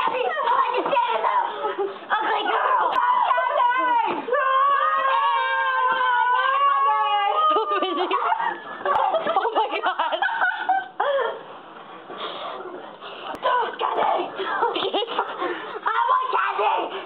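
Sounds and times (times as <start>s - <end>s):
shouts: 0.0s - 8.6s, 15.9s - 17.0s
girls laughing: 0.0s - 11.5s, 13.4s - 17.0s.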